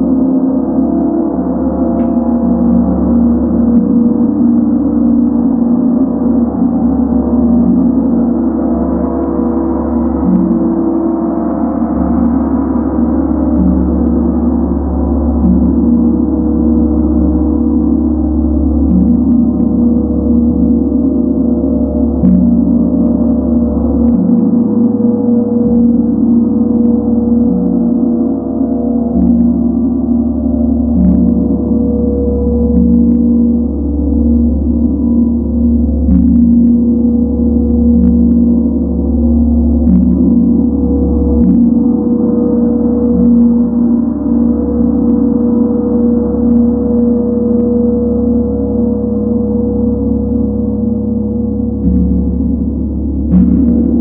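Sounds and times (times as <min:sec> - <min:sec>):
gong ringing: 0:01.2 - 0:08.1, 0:19.0 - 0:54.0.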